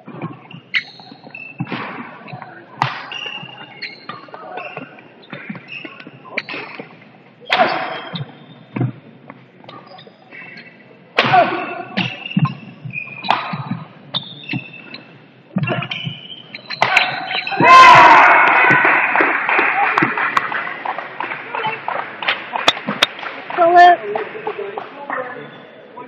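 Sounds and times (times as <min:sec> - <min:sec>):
shoes squeaking: 0:00.0 - 0:17.9, 0:20.0 - 0:25.9
racket striking shuttlecock: 0:13.2 - 0:13.8, 0:15.6 - 0:17.4.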